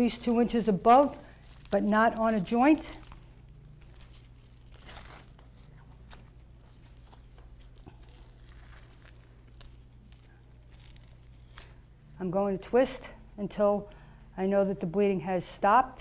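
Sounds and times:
strap rustling and scraping: 0.3s - 12.4s.

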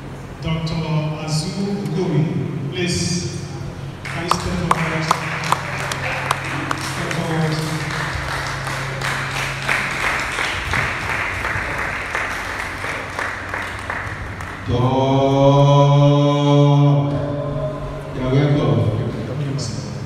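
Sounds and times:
rhythmic hand clapping: 4.1s - 15.0s.

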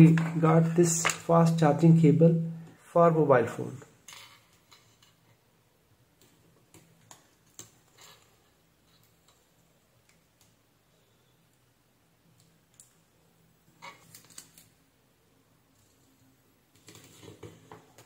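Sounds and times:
small clicks and rustles: 6.2s - 10.6s, 12.3s - 14.8s, 15.7s - 18.0s.

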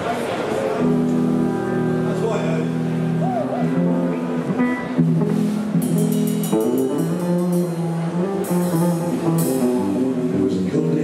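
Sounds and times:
electric lead guitar: 0.6s - 11.0s
acoustic guitar: 0.7s - 11.0s
double bass: 0.8s - 11.0s
drum kit: 4.0s - 10.7s.

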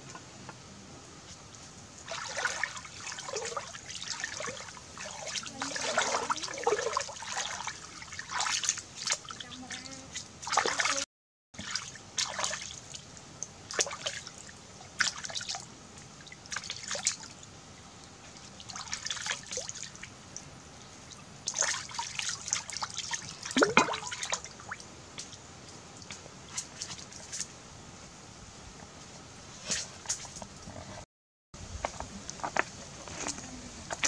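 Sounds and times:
water splashing and dripping: 1.4s - 20.4s, 21.1s - 27.5s.

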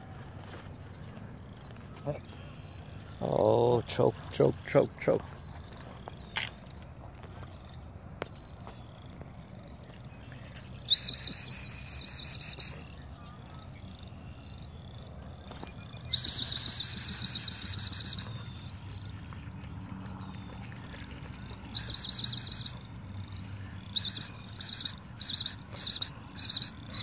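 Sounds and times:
dog training whistle trilling blasts: 16.2s - 18.3s, 21.8s - 22.8s, 24.0s - 27.0s.

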